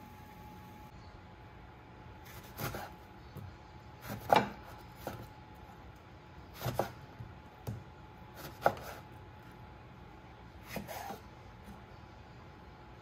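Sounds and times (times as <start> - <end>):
knife cutting lemon on board: 2.3 - 3.0, 4.0 - 5.3, 6.5 - 9.0, 10.6 - 11.3.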